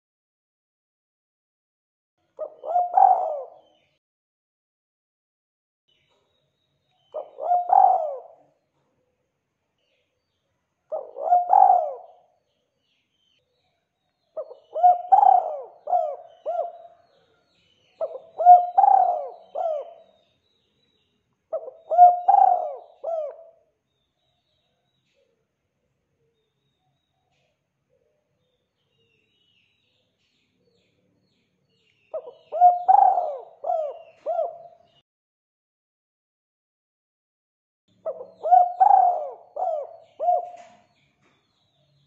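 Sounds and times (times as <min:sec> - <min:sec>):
dove cooing: 0:02.4 - 0:03.8, 0:07.1 - 0:08.4, 0:10.9 - 0:12.3, 0:14.4 - 0:17.0, 0:18.0 - 0:20.2, 0:21.5 - 0:23.6, 0:32.1 - 0:34.9, 0:38.0 - 0:40.9.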